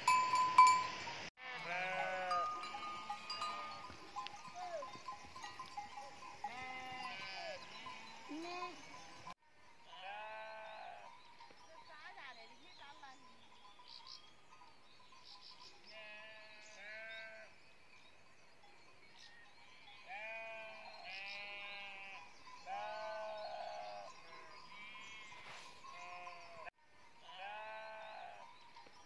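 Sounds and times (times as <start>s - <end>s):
sheep bleating: 1.4s - 3.9s, 6.4s - 9.0s, 9.9s - 11.1s, 15.9s - 17.5s, 20.1s - 24.1s, 24.8s - 28.4s.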